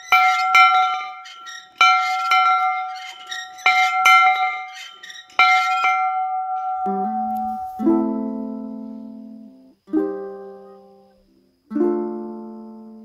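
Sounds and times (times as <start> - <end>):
metal bell ringing: 0.0 - 7.9.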